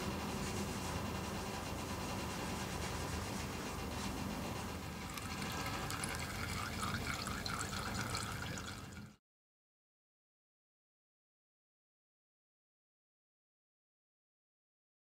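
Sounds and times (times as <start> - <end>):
oil trickling into container: 4.9 - 9.2.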